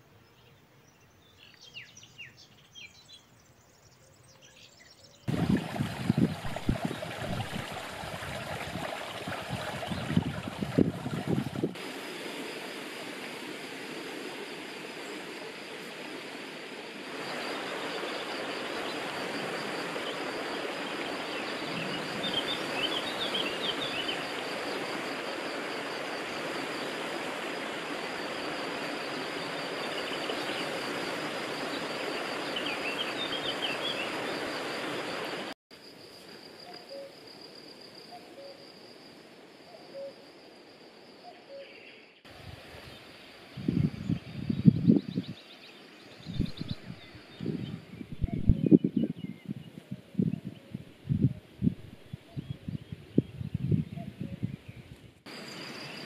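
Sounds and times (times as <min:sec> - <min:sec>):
water rushing over stones: 0:05.3 - 0:35.5.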